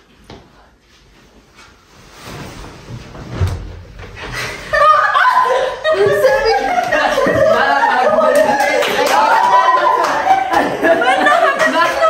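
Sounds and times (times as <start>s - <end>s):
people laughing: 4.3s - 12.0s
loud voices: 4.4s - 12.0s.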